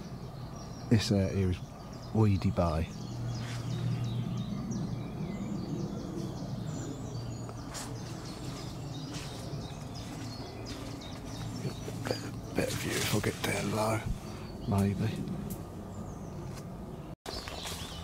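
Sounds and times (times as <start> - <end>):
low wind rumble: 0.0 - 17.2
small birds singing: 0.0 - 18.0
leaves and twigs rustling: 3.2 - 4.1, 7.2 - 16.7, 17.3 - 18.0.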